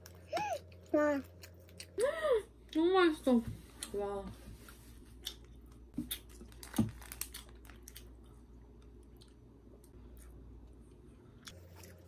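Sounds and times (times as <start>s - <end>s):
low steady hum: 0.0s - 12.0s
chewing: 7.2s - 12.0s.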